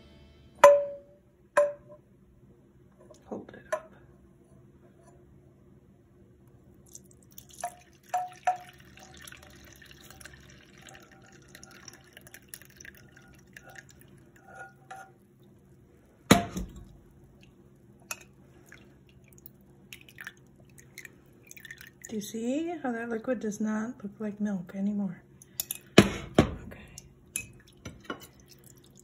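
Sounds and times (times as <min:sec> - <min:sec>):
liquid trickling through strainer: 0:06.9 - 0:15.1, 0:18.5 - 0:22.2, 0:27.4 - 0:29.0.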